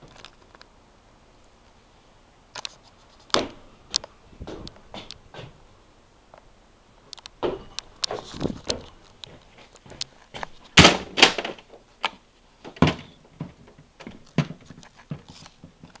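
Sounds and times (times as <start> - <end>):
loud thumps: 10.4 - 11.7.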